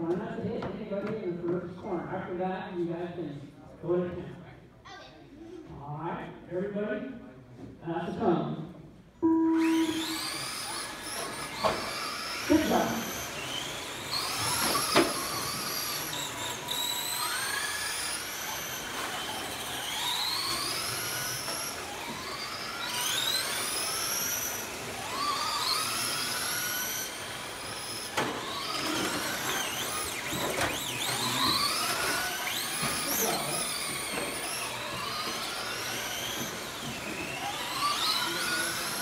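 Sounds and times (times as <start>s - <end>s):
electric motors whining: 9.2s - 39.0s.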